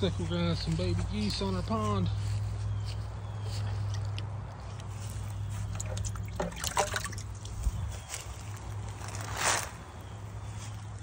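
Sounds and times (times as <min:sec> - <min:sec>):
liquid trickling into water: 0:05.1 - 0:08.1
short sharp splashes: 0:05.6 - 0:07.6.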